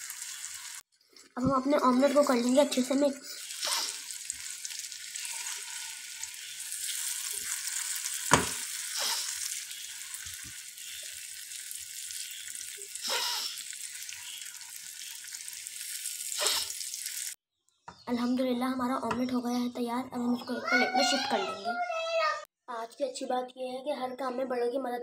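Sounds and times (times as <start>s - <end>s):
omelette sizzling in frying pan: 0.0s - 0.9s, 3.3s - 17.4s
spatula scraping and knocking pan: 7.4s - 8.7s.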